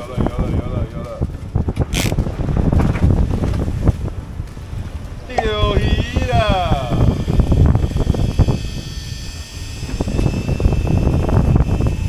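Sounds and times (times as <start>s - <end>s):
wind buffeting microphone: 0.0s - 12.0s
boat engine droning: 5.2s - 12.0s
faint high steady whine: 5.3s - 12.0s.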